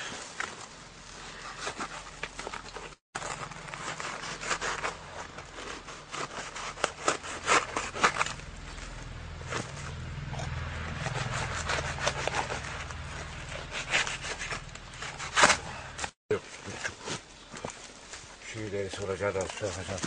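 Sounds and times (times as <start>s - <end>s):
blade scraping through material: 3.2s - 16.2s.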